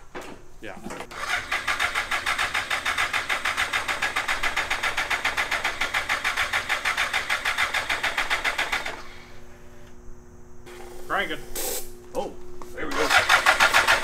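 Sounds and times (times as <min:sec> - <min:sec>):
electric starter cranking engine: 0:00.9 - 0:09.8, 0:12.8 - 0:14.0.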